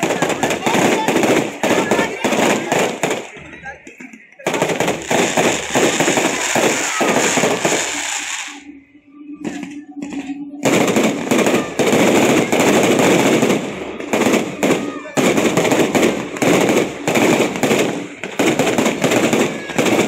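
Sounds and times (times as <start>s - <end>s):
fireworks bangs and crackle: 0.0s - 20.0s.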